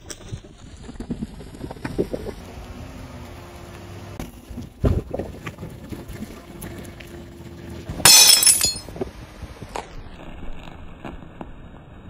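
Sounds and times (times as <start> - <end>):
glass shattering: 8.1 - 8.9.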